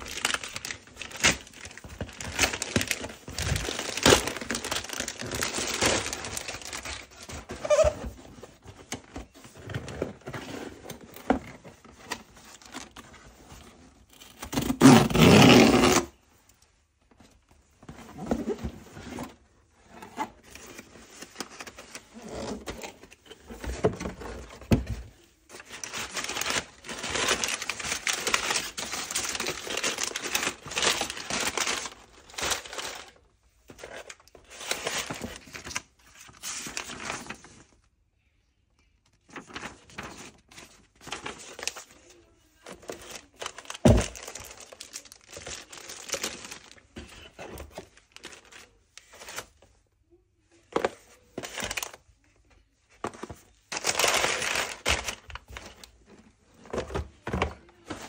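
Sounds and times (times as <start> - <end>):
packaging crinkling and tearing: 0.0 - 8.0, 25.5 - 33.2, 39.3 - 42.0, 42.6 - 46.9, 47.5 - 49.5, 53.2 - 56.0.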